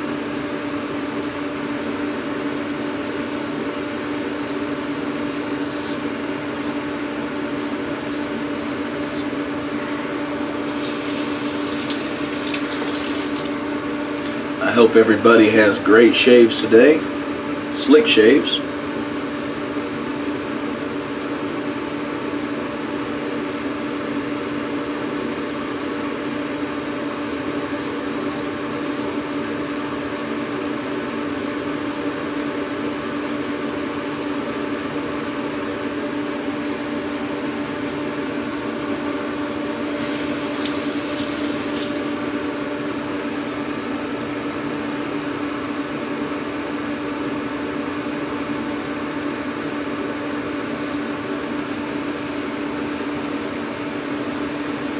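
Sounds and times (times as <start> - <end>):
razor scraping stubble: 0.0 - 1.4, 2.6 - 6.8, 7.5 - 9.5, 10.7 - 13.5, 22.2 - 29.2, 31.9 - 35.4, 40.0 - 42.1, 46.0 - 51.1, 54.4 - 54.9
low mechanical hum: 0.0 - 54.9.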